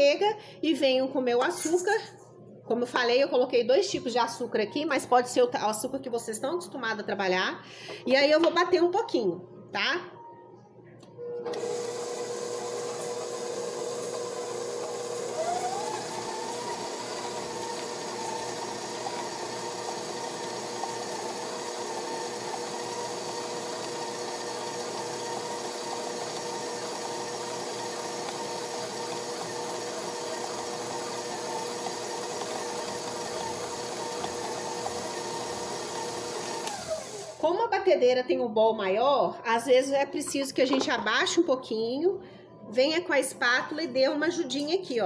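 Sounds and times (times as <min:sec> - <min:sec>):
stand mixer running: 0:11.4 - 0:37.4.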